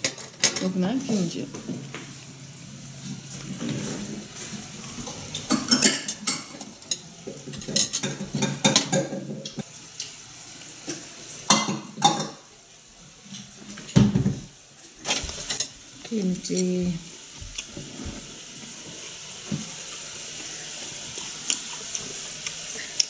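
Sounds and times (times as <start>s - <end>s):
chopsticks clinking on metal tray: 5.5s - 9.2s.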